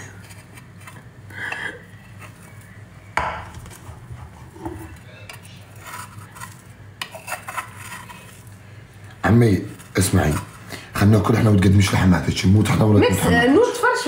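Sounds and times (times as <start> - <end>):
utensils clinking and scraping: 3.7 - 10.8.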